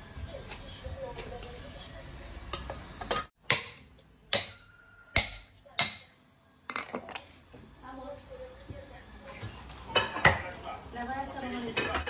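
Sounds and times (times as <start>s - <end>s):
cleaver chopping on wooden block: 3.4s - 4.6s.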